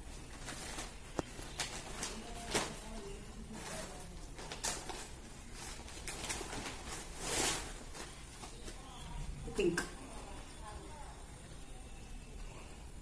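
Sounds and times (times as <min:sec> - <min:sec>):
plastic packets rustling: 0:00.0 - 0:09.1.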